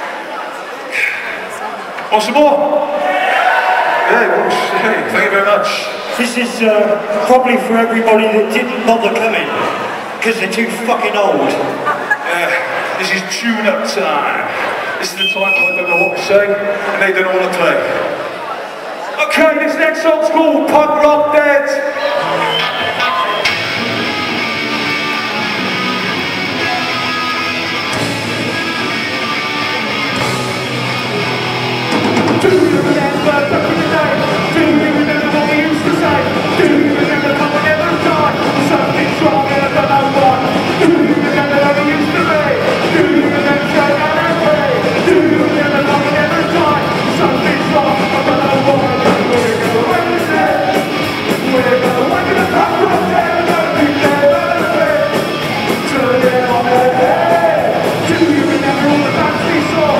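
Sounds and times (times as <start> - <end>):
electric guitar: 22.0 - 59.9
punk rock band playing: 22.2 - 59.9.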